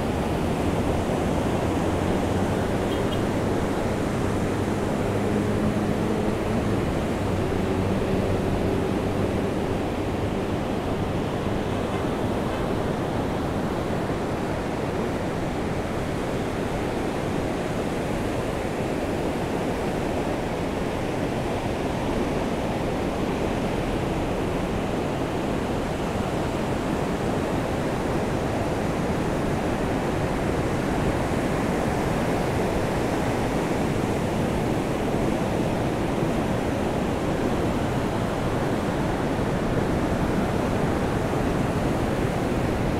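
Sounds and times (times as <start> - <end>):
low engine hum: 0.0 - 15.8.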